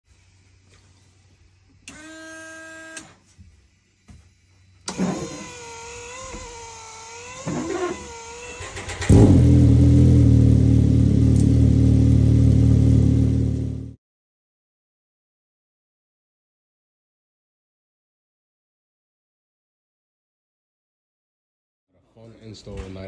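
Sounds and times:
engine starting and running unevenly: 4.9 - 5.5, 7.5 - 14.0
loud steady engine exhaust: 8.6 - 14.0.

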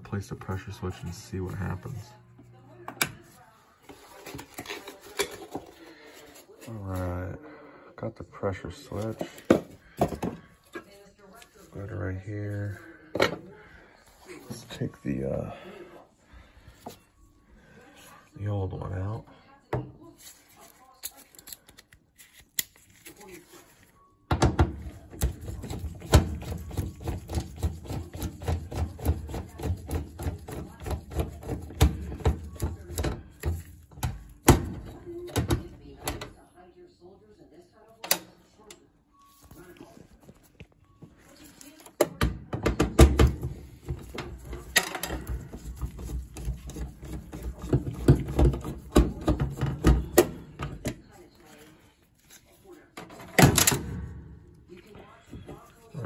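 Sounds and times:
screwdriver clicks and scrapes on metal: 21.0 - 23.2.

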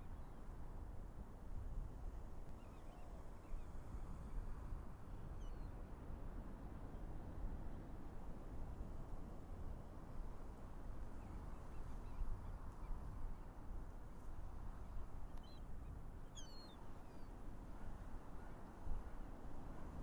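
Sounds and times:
wind: 0.0 - 20.0.

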